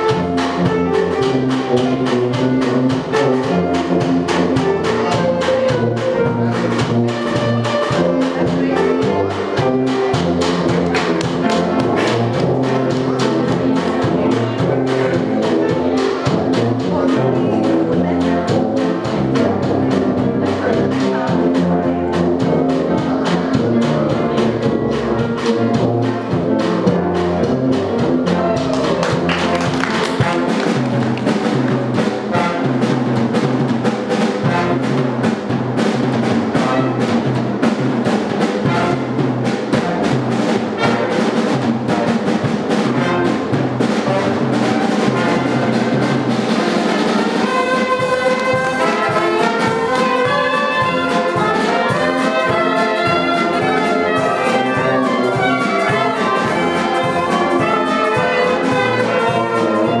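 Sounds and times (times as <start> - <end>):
drums and cymbals: 0.0 - 60.0
jazz band playing: 0.0 - 60.0
horns playing held chords: 47.0 - 60.0.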